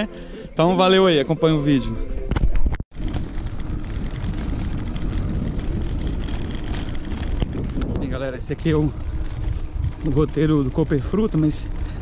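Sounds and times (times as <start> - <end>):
wind buffeting microphone: 2.2 - 12.0
bike tyres rumbling on dirt: 2.5 - 12.0.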